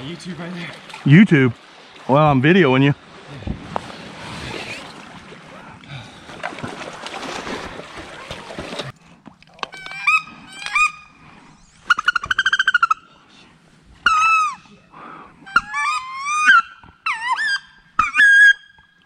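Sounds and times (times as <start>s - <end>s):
wading through shallow water: 0.0s - 9.6s.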